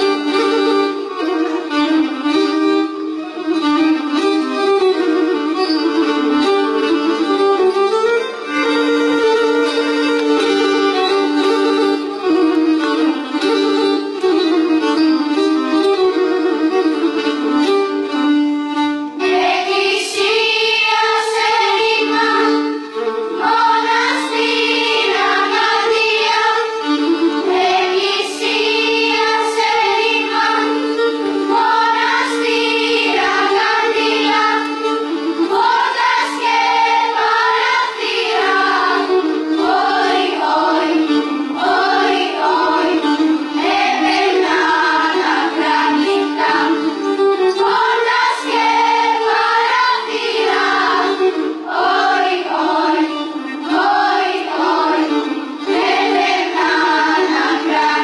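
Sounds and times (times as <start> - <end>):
bowed strings: 0.0 - 58.0
children's choir singing: 19.2 - 58.0.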